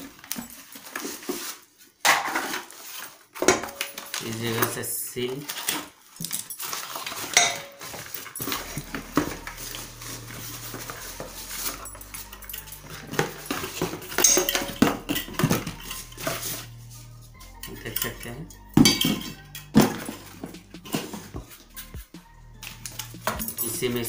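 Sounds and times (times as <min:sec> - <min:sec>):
cardboard and paper rustling: 0:00.0 - 0:21.9
metal pot clinking and knocking: 0:07.3 - 0:08.6, 0:12.6 - 0:16.3, 0:18.8 - 0:21.4.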